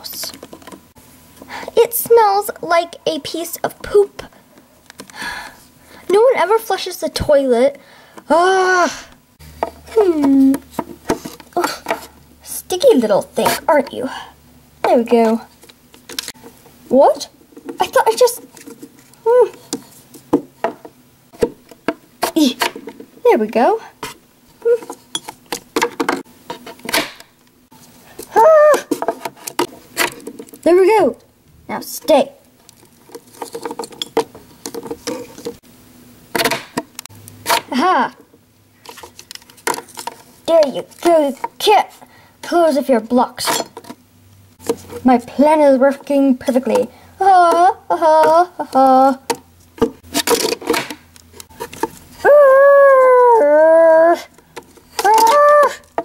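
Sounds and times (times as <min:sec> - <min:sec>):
child making high calls: 0:28.3 - 0:28.9, 0:55.0 - 0:55.8.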